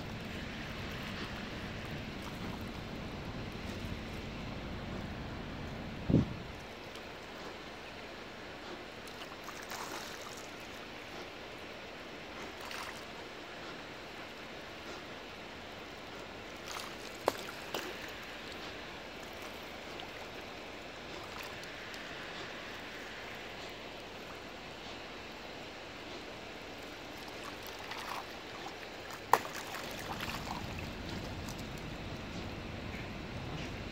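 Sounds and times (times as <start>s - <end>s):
water lapping at pebble shore: 6.6s - 32.5s
splashy swishes: 9.4s - 10.7s, 27.1s - 31.7s
fish splashing: 16.6s - 23.6s, 26.8s - 31.8s
sharp water plop: 29.1s - 31.6s.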